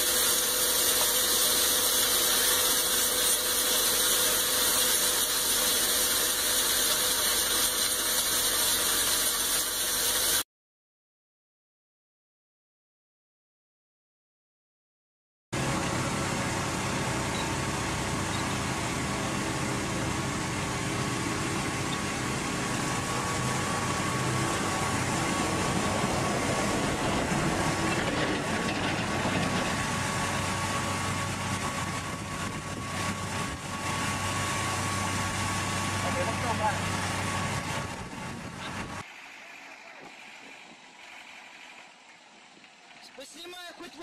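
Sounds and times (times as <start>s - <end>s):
motor whining over low hum: 15.6s - 42.7s.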